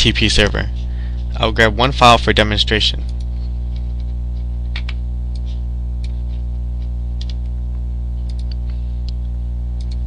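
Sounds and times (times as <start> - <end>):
electrical mains hum: 0.0 - 10.0
computer mouse clicks: 7.2 - 7.5, 8.2 - 9.2, 9.8 - 10.0.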